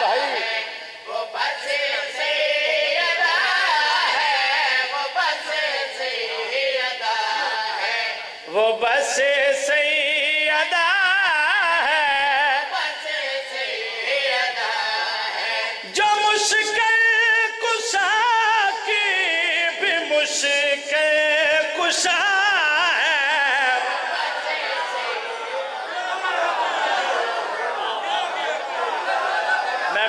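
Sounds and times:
man chanting unaccompanied: 0.0 - 13.5.

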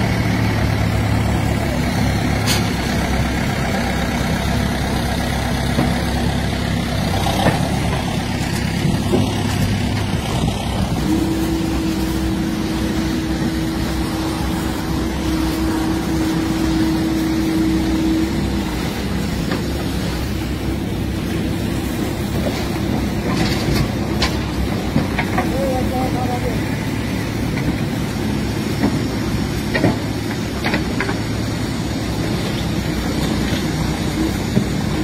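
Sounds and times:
dump truck engine running: 0.0 - 35.0.

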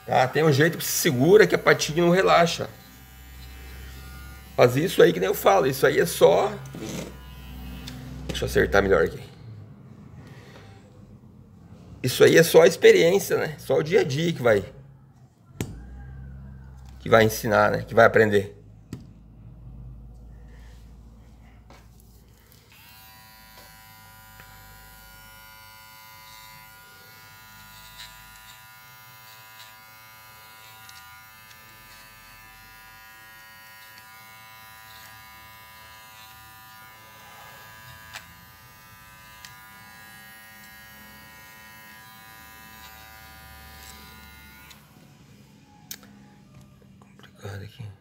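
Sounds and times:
pet trimmer buzzing: 0.0 - 8.3, 22.5 - 45.0.

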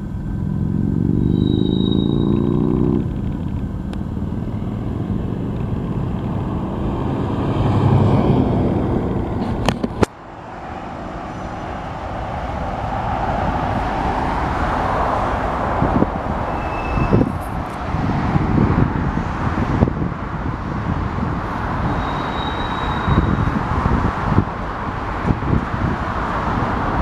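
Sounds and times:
road traffic noise: 0.0 - 27.0
freight train rumbling past: 10.4 - 19.7.

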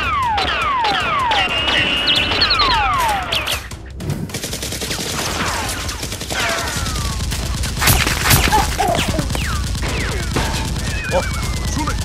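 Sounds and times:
falling whines: 0.0 - 3.6, 10.8 - 12.0
gunfire bursts: 0.0 - 12.0.

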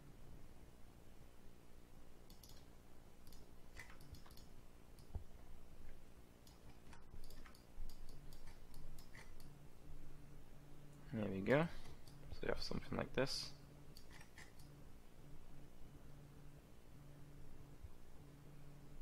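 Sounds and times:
faint low hum: 0.0 - 19.0
mouse and keyboard clicks: 2.3 - 5.2, 6.4 - 9.5, 14.0 - 14.7.

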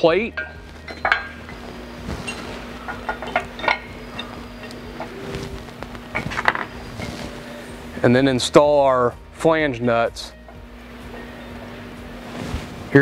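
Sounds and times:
steady low hum: 0.0 - 13.0
metal plate clinking on bolts: 0.3 - 1.6, 2.2 - 5.2.

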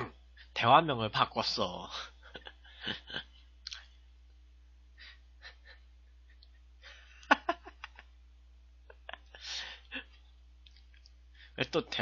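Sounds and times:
man breathing quietly: 4.9 - 5.6, 11.2 - 11.6.

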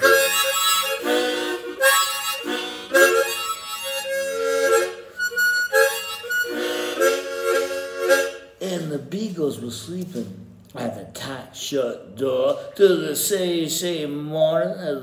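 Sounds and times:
harmonica playing: 0.0 - 8.8, 12.8 - 13.6.

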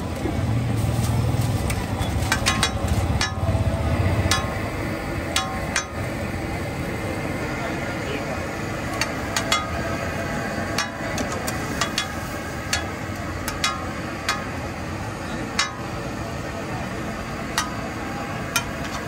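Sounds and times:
street noise: 0.0 - 19.0
metal spatula hitting iron griddle: 2.2 - 6.1, 8.9 - 10.0, 10.7 - 14.8, 15.4 - 16.0, 17.5 - 19.0.

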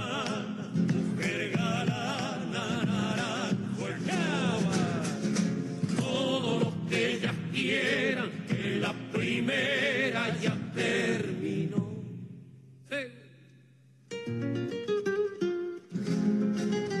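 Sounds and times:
folk song with vibrato singing: 0.0 - 13.5.

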